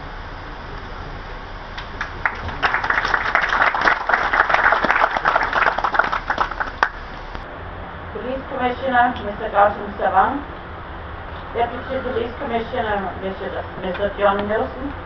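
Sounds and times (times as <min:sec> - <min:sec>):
audience applauding: 0:01.8 - 0:07.1.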